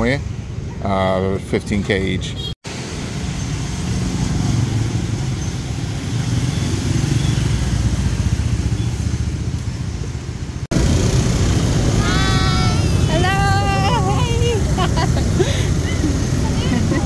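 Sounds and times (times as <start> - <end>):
motorbike engines passing: 2.7 - 17.0
motor scooter engine rumble: 4.7 - 17.0.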